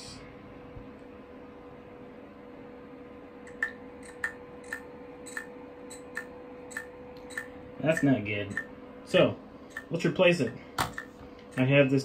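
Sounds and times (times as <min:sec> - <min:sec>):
steady hum: 0:00.0 - 0:12.0
hard drive clicking: 0:03.5 - 0:08.7, 0:09.7 - 0:11.7.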